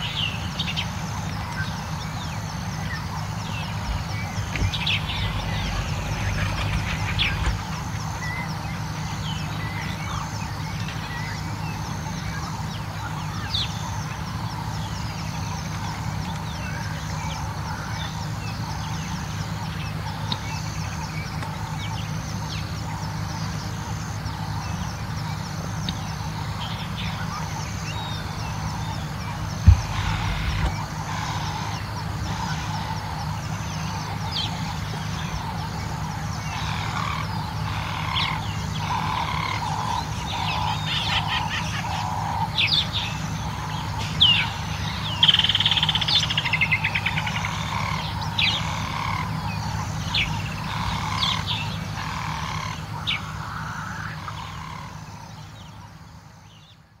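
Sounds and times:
birds chirping: 0:00.0 - 0:57.0
low repeated bird calls: 0:00.0 - 0:57.0
steady low hum: 0:00.0 - 0:57.0
fast bird trill: 0:01.8 - 0:10.6
sharp rising whistles: 0:04.1 - 0:09.9.

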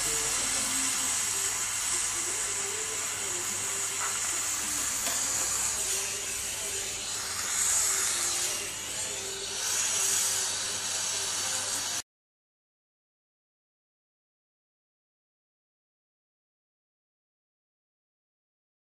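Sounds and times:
gas torch hissing: 0:00.0 - 0:12.0.

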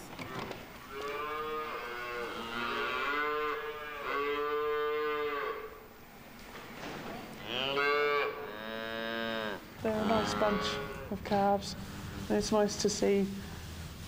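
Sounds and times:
calves bawling: 0:00.3 - 0:05.8, 0:07.4 - 0:11.2.

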